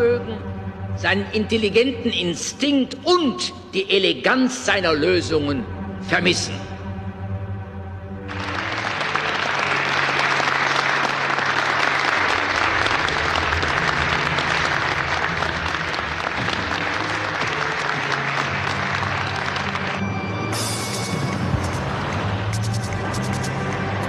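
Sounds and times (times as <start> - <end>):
music playing low: 0.0 - 24.0
audience applauding: 8.2 - 24.0.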